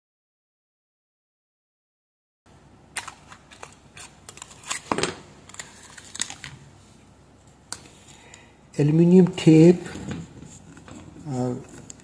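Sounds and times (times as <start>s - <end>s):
foil tape crinkling: 3.0s - 6.6s.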